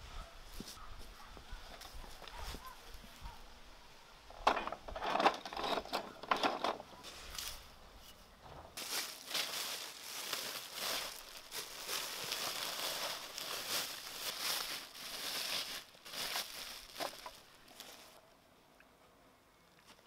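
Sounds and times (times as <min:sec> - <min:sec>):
cloth rustling and crumpling: 0:08.8 - 0:18.2.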